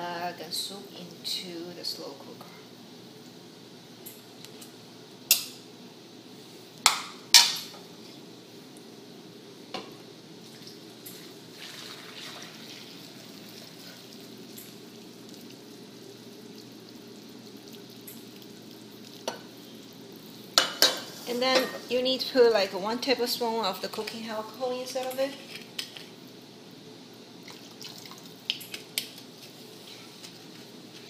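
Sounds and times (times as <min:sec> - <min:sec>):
broth pouring: 0:10.4 - 0:20.6, 0:27.4 - 0:28.9
metal tongs clanking on cookware: 0:20.6 - 0:21.9.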